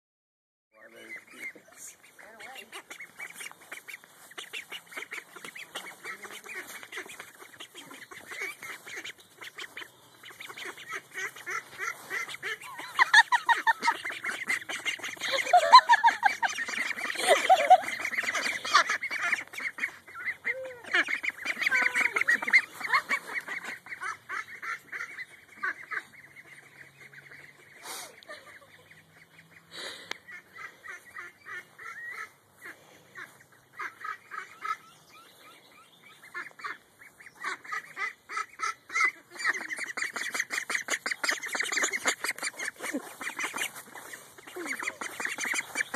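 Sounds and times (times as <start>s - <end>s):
ducks quacking: 0.8s - 45.9s.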